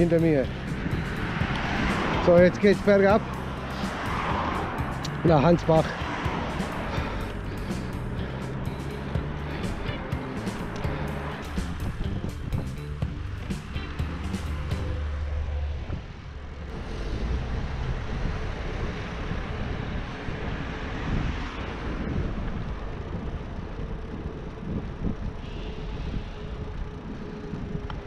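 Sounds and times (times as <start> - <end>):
wind on microphone: 0.0 - 5.2, 11.3 - 13.1, 15.6 - 28.0
bicycle tyre rumble on pavement: 0.0 - 28.0.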